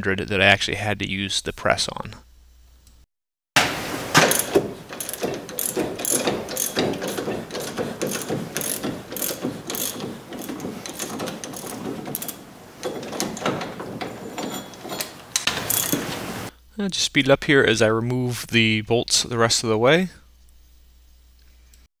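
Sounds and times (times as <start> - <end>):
socket ratchet clicking: 4.2 - 16.2.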